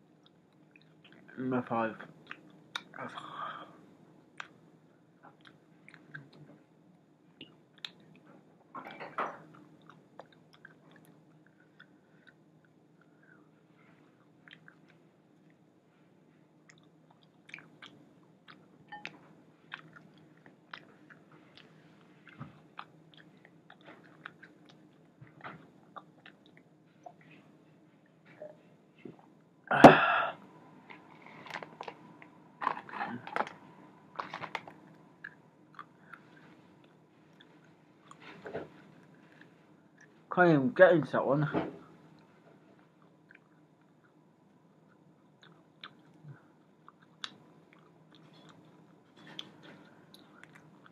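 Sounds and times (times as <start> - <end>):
person chewing wings: 9.5 - 12.4, 16.7 - 18.6, 19.7 - 25.2, 44.9 - 50.9.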